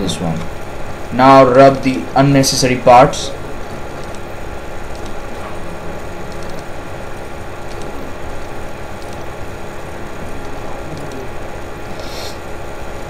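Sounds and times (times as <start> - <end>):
fan or machine hum: 0.0 - 13.0
computer mouse clicks: 4.0 - 4.2, 4.9 - 5.2, 6.3 - 6.7, 7.7 - 8.0, 9.0 - 9.3.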